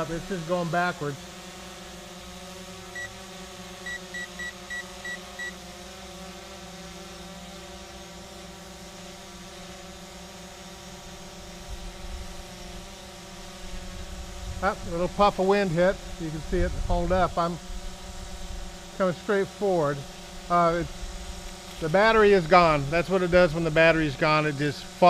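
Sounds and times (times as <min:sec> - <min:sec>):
drone motors whining: 0:00.0 - 0:25.0
short high electronic beeps: 0:03.8 - 0:05.5
wind rumble on microphone: 0:16.4 - 0:17.9.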